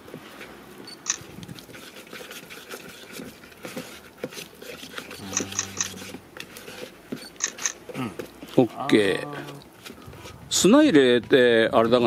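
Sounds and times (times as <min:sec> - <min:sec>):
spatula stirring mortar in cup: 0:00.4 - 0:08.6.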